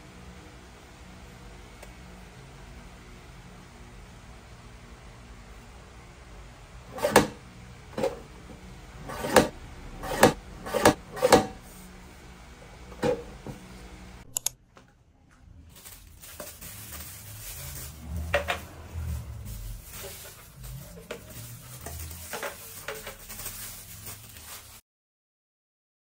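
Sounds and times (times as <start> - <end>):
paper cutter blade chopping: 6.9 - 7.4, 9.0 - 11.6.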